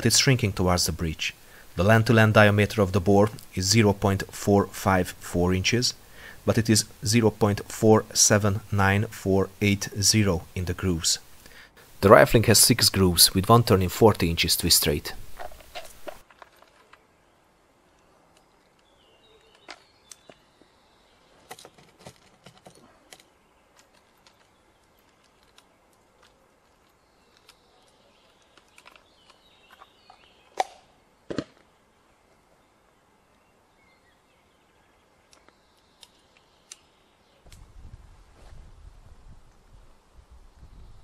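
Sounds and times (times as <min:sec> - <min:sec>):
faint bird chirps: 0:16.9 - 0:21.8.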